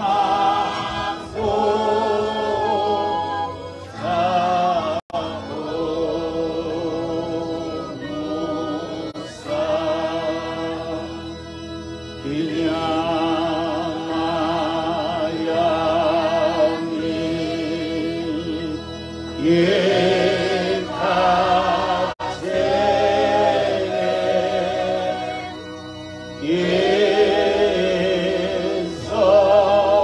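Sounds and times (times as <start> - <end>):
man singing a slow hymn: 0.0 - 3.2, 3.9 - 11.2, 12.2 - 22.5, 26.4 - 30.0.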